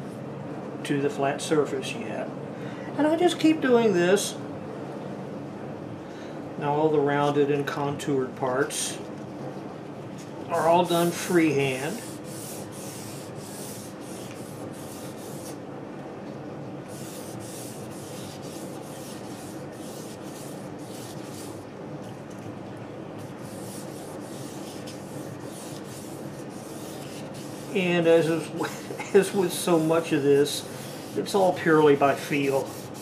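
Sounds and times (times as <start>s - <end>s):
sandpaper scratching wood: 10.6s - 15.6s, 16.9s - 21.6s, 23.3s - 28.6s, 29.2s - 33.0s.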